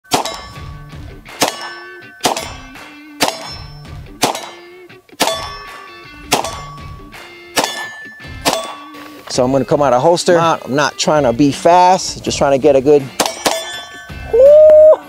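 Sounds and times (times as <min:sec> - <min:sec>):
sharp metallic clangs: 0:00.0 - 0:10.0, 0:13.0 - 0:14.4.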